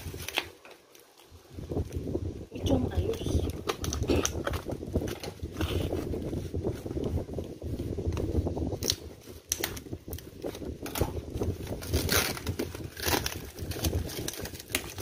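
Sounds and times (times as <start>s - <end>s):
packing tape crinkling: 0.0s - 2.0s, 3.0s - 15.0s
hands rubbing cardboard box: 4.4s - 15.0s.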